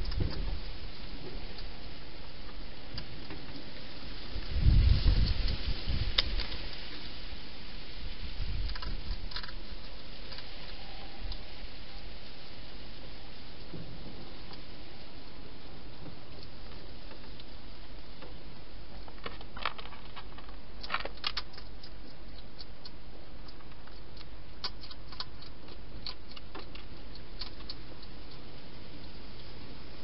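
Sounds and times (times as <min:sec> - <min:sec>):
steady hiss: 0:00.0 - 0:30.0
hedgehog feeding clicks and taps: 0:08.5 - 0:10.5, 0:18.1 - 0:29.5.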